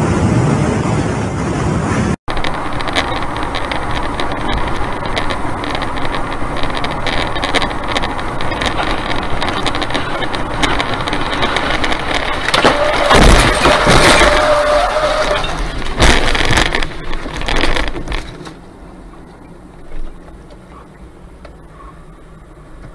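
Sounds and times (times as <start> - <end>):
car road and engine noise: 0.0 - 22.9
scattered ticks: 2.3 - 12.6
loud crash: 8.5 - 17.8.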